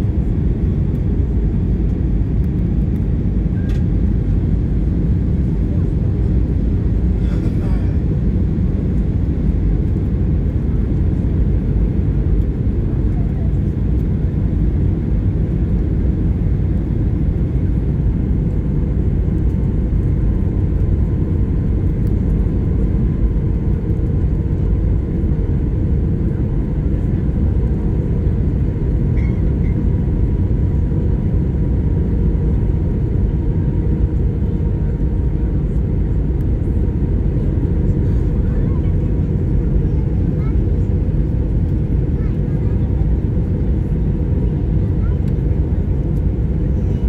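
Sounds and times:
airplane cabin roar: 0.0s - 47.0s.

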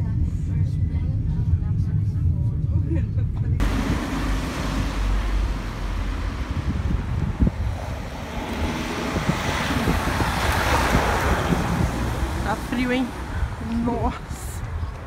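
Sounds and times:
traffic rumble: 0.0s - 15.0s
vehicle passing with tyre hiss: 3.6s - 13.6s.

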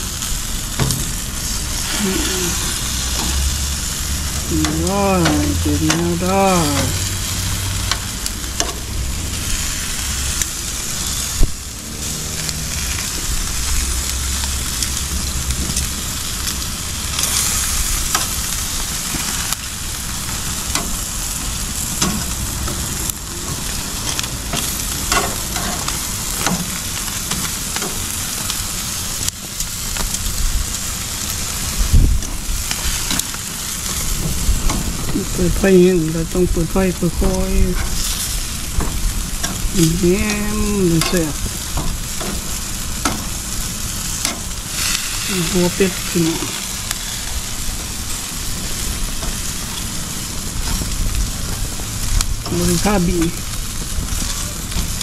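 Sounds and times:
meat sizzling on grill: 0.0s - 55.0s
metal tongs clicking on grate: 24.1s - 26.6s, 41.0s - 41.2s.

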